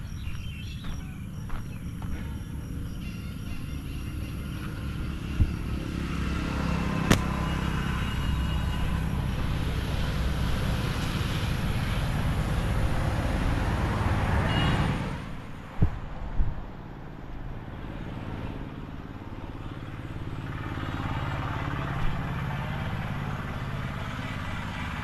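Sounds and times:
vehicle passing: 0.0 - 25.0
sharp clicks: 7.1 - 7.4.

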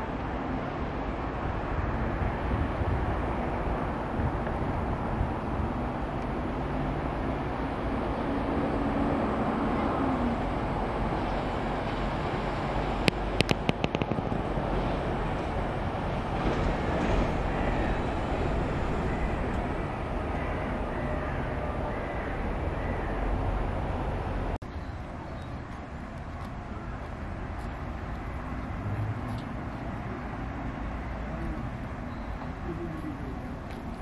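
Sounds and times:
passing traffic: 0.0 - 34.0
sharp clicks: 13.0 - 14.4.

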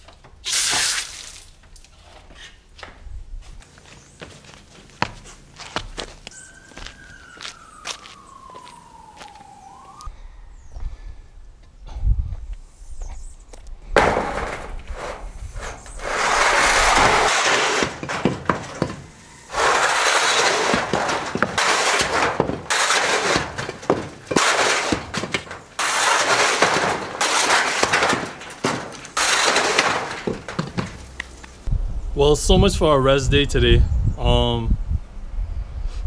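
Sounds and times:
concrete rubble crashing and scraping: 14.0 - 31.7.

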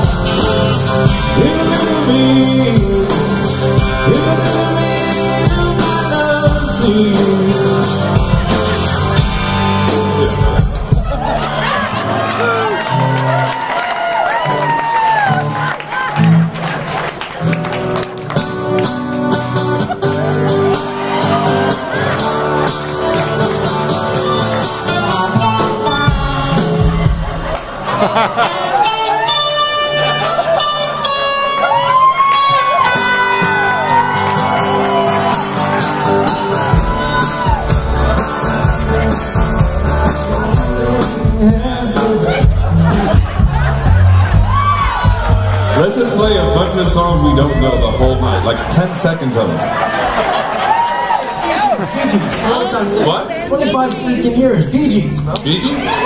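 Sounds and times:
male singer: 0.0 - 10.9, 24.8 - 27.2, 38.8 - 43.4
strummed acoustic guitars: 0.0 - 13.2, 16.2 - 31.8, 32.4 - 47.5
bass: 0.0 - 28.1, 28.7 - 49.8
drums: 0.0 - 29.0, 32.1 - 49.0.

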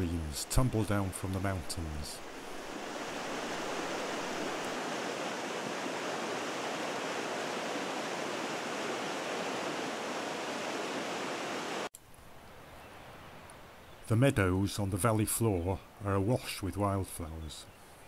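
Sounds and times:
stream rushing over rocks: 0.0 - 11.9.

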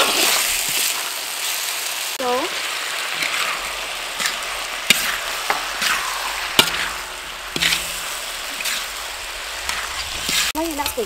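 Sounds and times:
food sizzling in a wok: 0.0 - 11.0
metal spatula knocking wok: 4.2 - 8.8.

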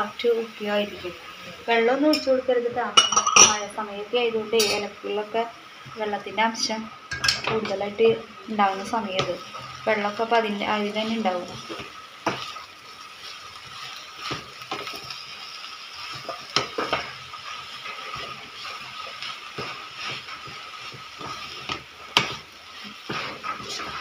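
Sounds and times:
spatula scraping greens in pot: 10.9 - 24.0.

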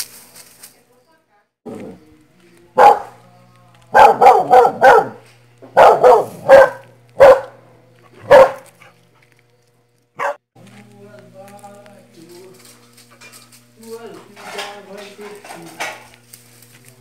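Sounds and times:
dog barking: 2.8 - 3.2, 3.9 - 9.0, 10.2 - 10.4.

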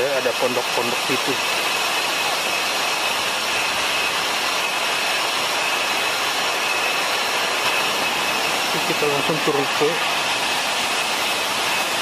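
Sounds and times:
waterfall rushing: 0.0 - 12.0.

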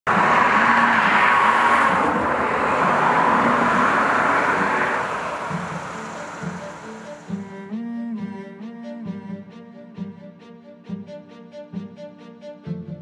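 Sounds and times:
road traffic passing: 0.0 - 7.6.

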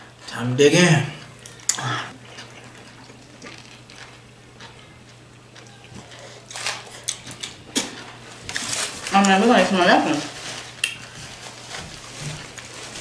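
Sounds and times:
steady low hum: 0.0 - 13.0
people chewing sandwiches: 1.2 - 9.4, 10.3 - 13.0
paper wrappers rustling: 3.2 - 4.8, 6.0 - 13.0.

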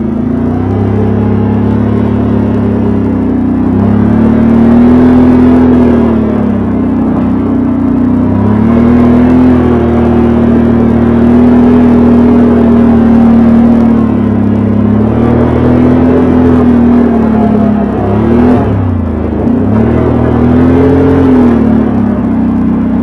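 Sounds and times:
atv engine running: 0.0 - 23.0.

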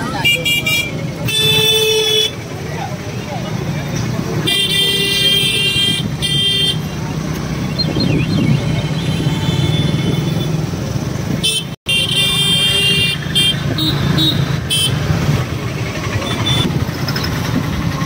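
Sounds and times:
street traffic engines: 0.0 - 18.0
car horn toots: 4.5 - 6.9, 11.4 - 15.0, 16.2 - 16.7.

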